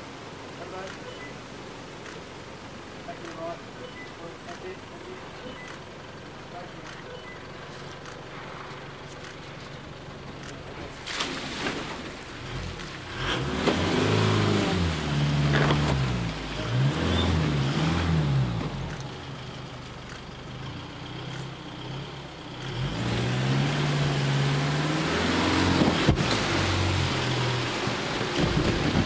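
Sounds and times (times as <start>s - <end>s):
wheels in mud and water: 0.0s - 29.0s
diesel engine revving: 12.3s - 29.0s.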